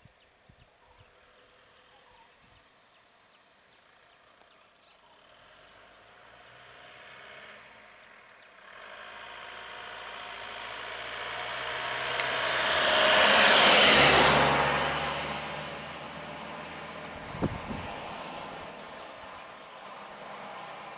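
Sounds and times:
truck driving past: 0:05.2 - 0:20.9.

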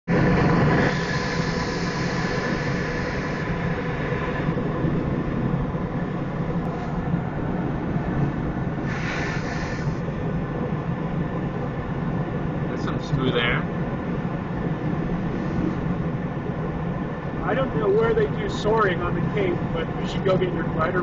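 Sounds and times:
low aircraft engine drone: 0:00.0 - 0:21.0
rush of air in cockpit: 0:00.1 - 0:21.0
bright hiss: 0:00.7 - 0:04.3, 0:08.8 - 0:10.1.

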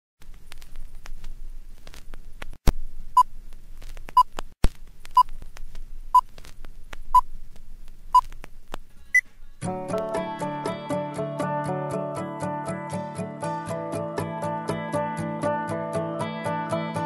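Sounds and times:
old film clicks and crackle: 0:00.2 - 0:02.7, 0:03.5 - 0:08.9.

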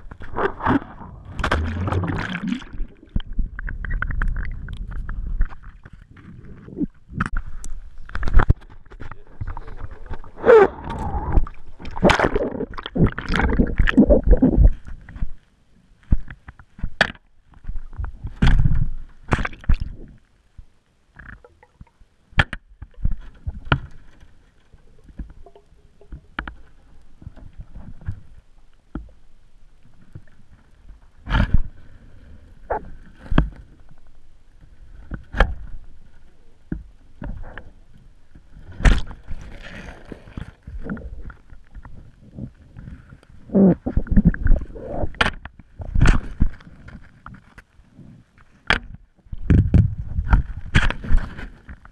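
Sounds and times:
muffled underwater splashing: 0:00.0 - 0:05.4, 0:09.2 - 0:14.8
muffled underwater knocks and clicks: 0:02.9 - 0:15.4, 0:21.1 - 0:24.2, 0:25.0 - 0:29.2, 0:48.6 - 0:51.9.

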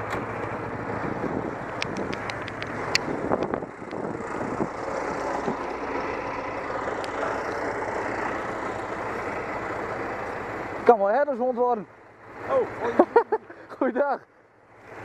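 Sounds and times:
truck diesel engine idling: 0:00.0 - 0:15.0
sharp clicks and knocks: 0:01.7 - 0:04.0.

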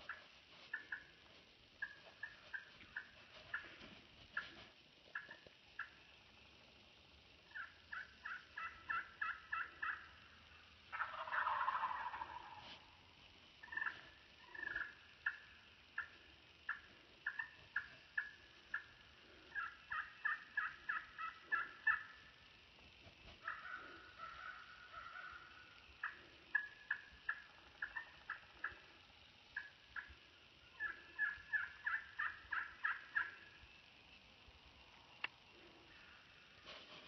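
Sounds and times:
turkey gobbling: 0:00.0 - 0:01.2, 0:01.8 - 0:06.0, 0:07.5 - 0:13.0, 0:13.6 - 0:22.4, 0:23.4 - 0:29.0, 0:29.6 - 0:33.6
turkey yelping: 0:01.8 - 0:03.7, 0:07.5 - 0:10.2, 0:10.9 - 0:12.8, 0:13.6 - 0:18.9, 0:19.5 - 0:22.3, 0:23.4 - 0:28.9, 0:29.6 - 0:30.1, 0:30.7 - 0:33.4.

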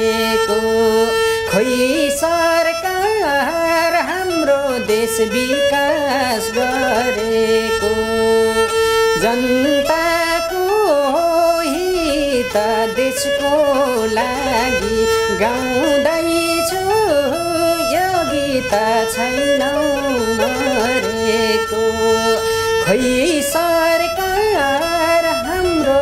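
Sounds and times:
bowed fiddle folk melody: 0:00.0 - 0:26.0
man singing: 0:00.0 - 0:26.0.

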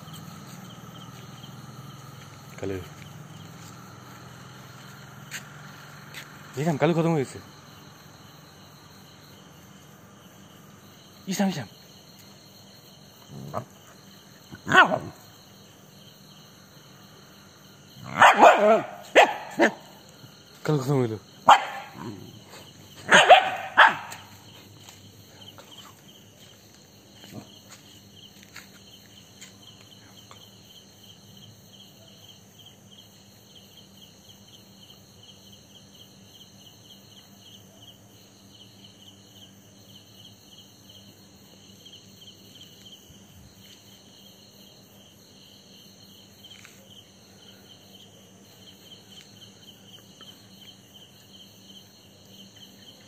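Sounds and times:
crickets chirping: 0:00.0 - 0:53.0.

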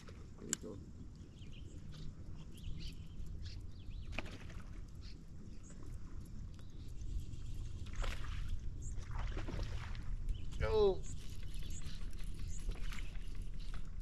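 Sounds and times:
wind and water rumble: 0:00.0 - 0:14.0
bird chirps: 0:00.6 - 0:04.4, 0:10.2 - 0:14.0.

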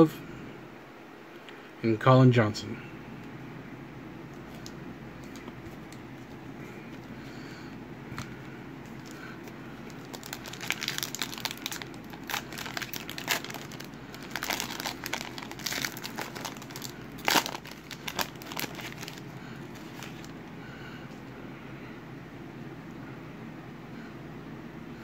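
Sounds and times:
foil wrapper crinkling: 0:08.1 - 0:20.4.

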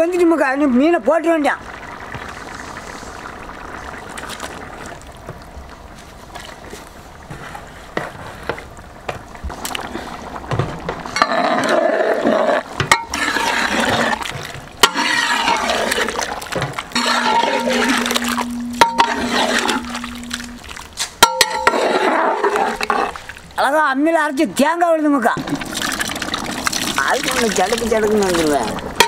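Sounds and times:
food splashing into boiling curry: 0:01.6 - 0:06.8, 0:25.4 - 0:29.0.

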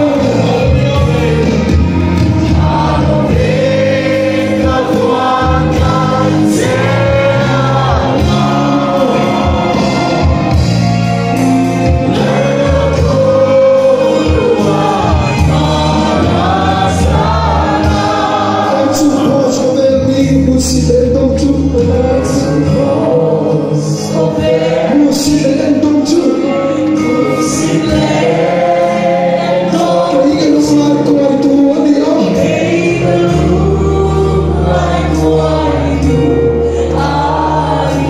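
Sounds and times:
steady drum beat: 0:00.0 - 0:20.9
amplified band: 0:00.0 - 0:38.0
congregation singing: 0:00.0 - 0:38.0.

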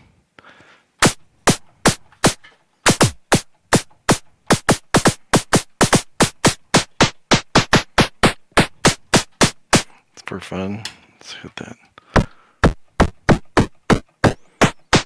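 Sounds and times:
synthesized snare drum hits: 0:01.0 - 0:09.9, 0:12.2 - 0:15.0.

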